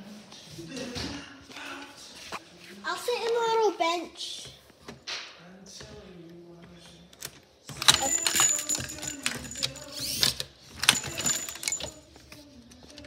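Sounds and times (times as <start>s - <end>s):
rattling and clattering: 7.7s - 10.0s, 10.8s - 12.0s.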